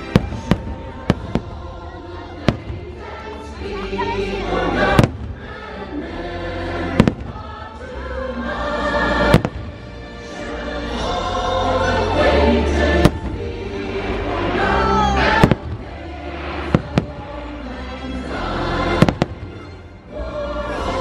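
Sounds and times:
fireworks booming: 0:00.0 - 0:01.6, 0:02.4 - 0:03.0, 0:04.9 - 0:05.5, 0:06.9 - 0:07.6, 0:09.2 - 0:10.0, 0:13.0 - 0:17.8, 0:18.9 - 0:19.8
music with choir singing: 0:00.0 - 0:21.0.

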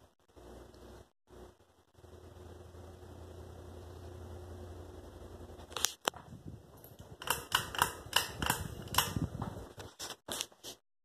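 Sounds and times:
ceiling fan humming: 0:00.0 - 0:10.4
sharp clicks and knocks: 0:05.7 - 0:09.6.

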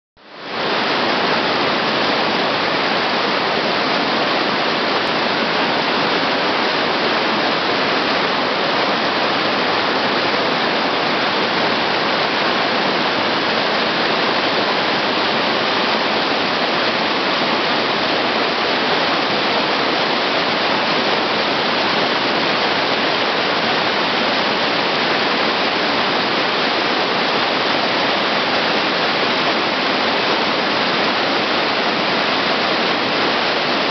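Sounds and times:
stream rushing over rocks: 0:00.2 - 0:33.9.

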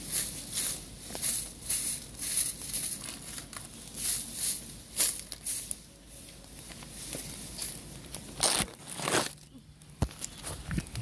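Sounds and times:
dry leaves rustling and crackling: 0:00.0 - 0:10.8.

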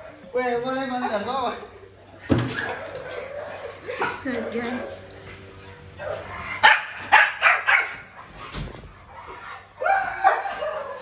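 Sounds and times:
dog yelping: 0:02.5 - 0:04.8, 0:05.6 - 0:08.5, 0:09.1 - 0:11.0
dog barking: 0:05.7 - 0:08.4, 0:09.2 - 0:11.0.

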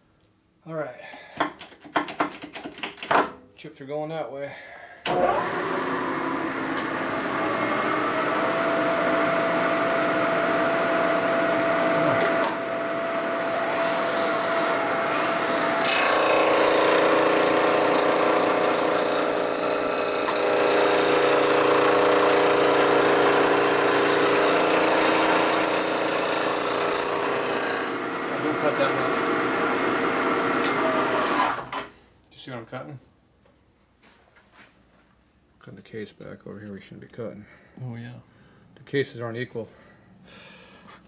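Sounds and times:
milling machine cutting metal: 0:05.1 - 0:29.1.

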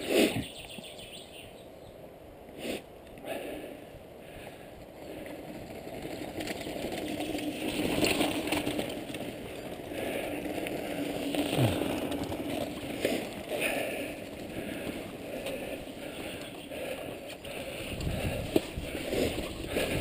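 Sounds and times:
bike rattling over bumps: 0:04.2 - 0:20.0
bike tyres on gravel: 0:04.2 - 0:20.0.

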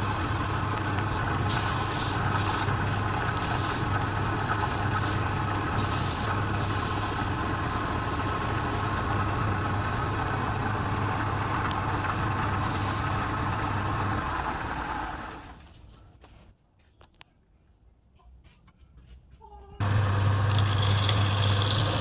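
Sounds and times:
wood lathe humming: 0:19.8 - 0:22.0.

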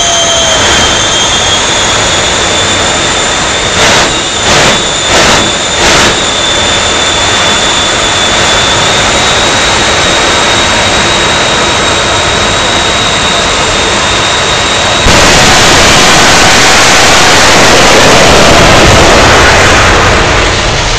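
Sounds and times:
jet engine turbine whine: 0:00.0 - 0:20.9
jet engines roaring: 0:00.0 - 0:20.9.

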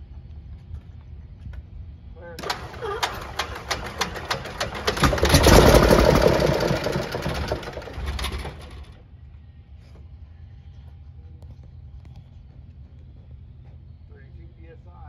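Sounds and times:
aircraft engine cranking on starter: 0:02.4 - 0:08.9.

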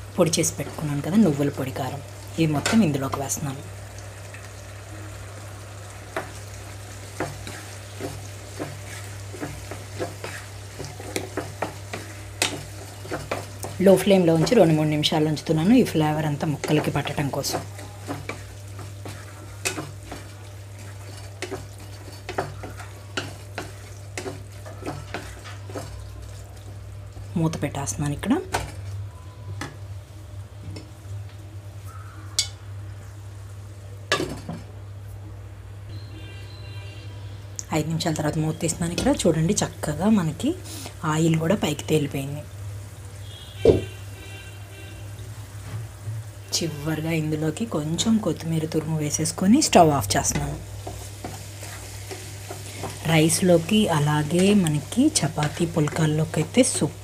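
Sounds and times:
low sizzle: 0:00.0 - 0:57.0
wooden spatula scraping a pan: 0:07.0 - 0:13.8, 0:16.5 - 0:26.0, 0:50.4 - 0:56.0.

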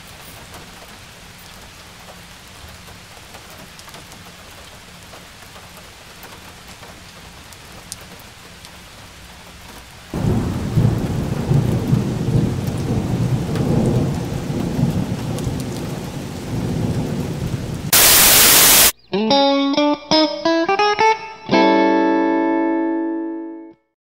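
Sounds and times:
hail and rain falling: 0:00.0 - 0:18.9
thunder rumbling: 0:10.1 - 0:18.9.

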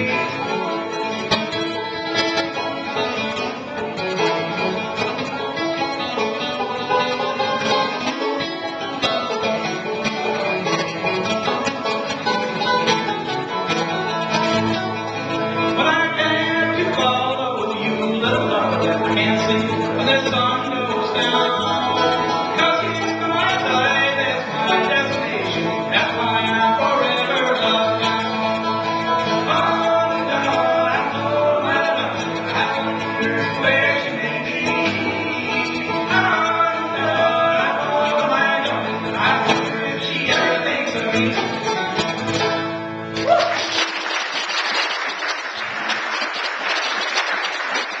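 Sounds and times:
acoustic guitar and banjo tune: 0:00.0 - 0:48.0
audience applause: 0:43.2 - 0:48.0.

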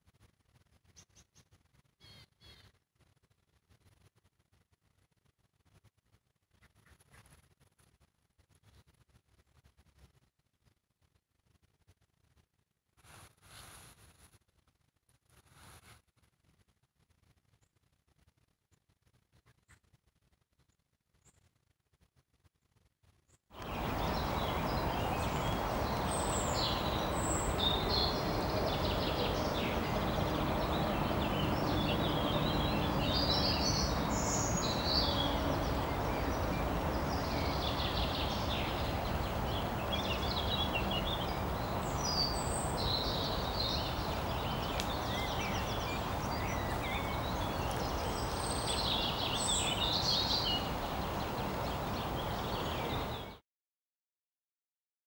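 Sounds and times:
countryside background noise: 0:00.0 - 0:53.4
birds chirping and trilling: 0:23.6 - 0:53.4.

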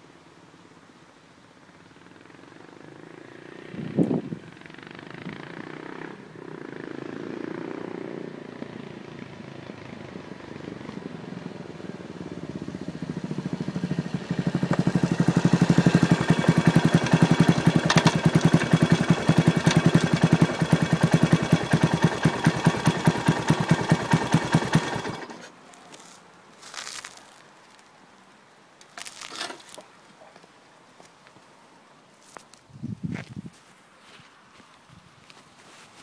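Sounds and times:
motorcycle engine idling loudly: 0:12.5 - 0:25.4.

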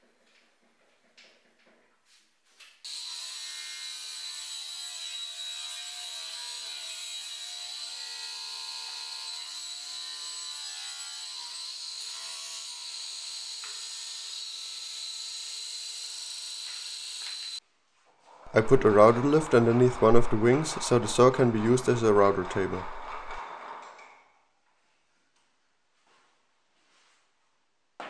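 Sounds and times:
table saw cutting board: 0:02.9 - 0:17.6, 0:18.5 - 0:24.0.

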